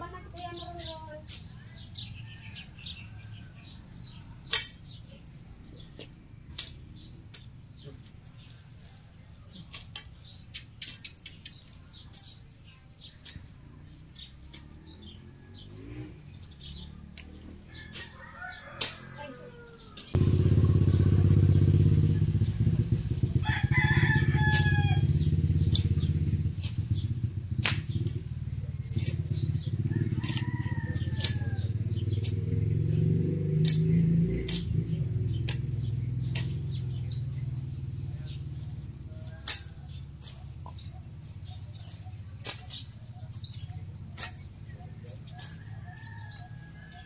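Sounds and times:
grass cut by hand: 0.1s - 8.8s, 9.5s - 47.0s
rooster crowing: 17.7s - 20.1s, 23.4s - 25.2s, 29.8s - 31.8s, 45.4s - 47.0s
steady low rumble: 20.1s - 39.0s.

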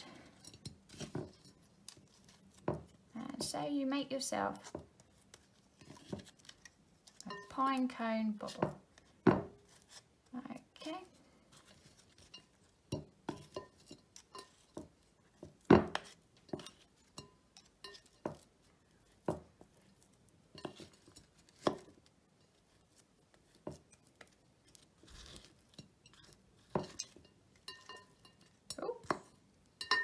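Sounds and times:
wooden spoon scraping ceramic bowl: 4.5s - 10.1s, 11.1s - 24.1s, 24.7s - 30.0s.

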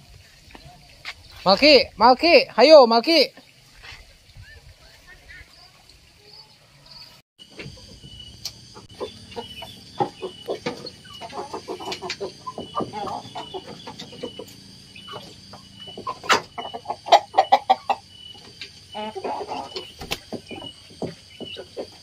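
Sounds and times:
chickens clucking: 6.2s - 22.0s.

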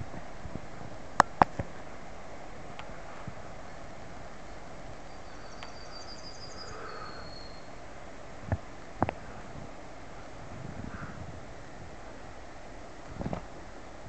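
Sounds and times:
rural background hiss: 0.0s - 14.0s
songbird singing with trill: 4.4s - 7.8s.

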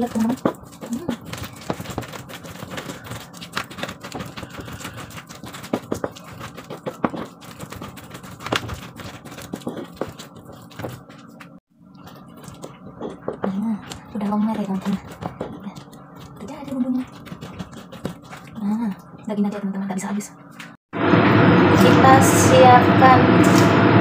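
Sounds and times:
pestle knocking against mortar: 0.0s - 11.1s, 12.5s - 18.5s
pestle grinding in a mortar: 0.0s - 19.3s.

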